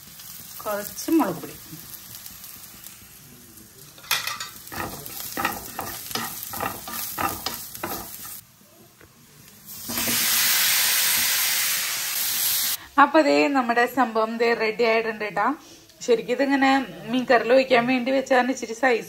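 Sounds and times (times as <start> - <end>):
food sizzling in pan: 0.0 - 13.4
loud sizzle: 0.0 - 15.4
spatula scraping pan: 4.2 - 8.4.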